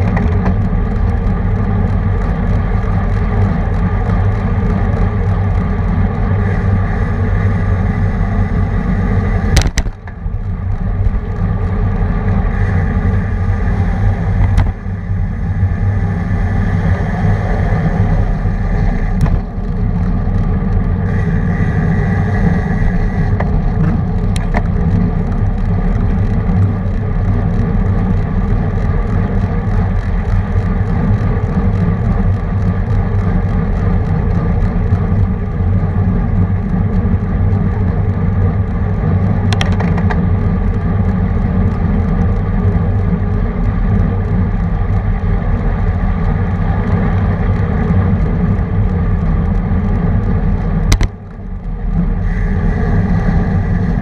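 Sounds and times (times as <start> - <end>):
road noise: 0.0 - 54.0
wind rush over microphone: 0.0 - 54.0
sharp clicks: 50.9 - 51.4.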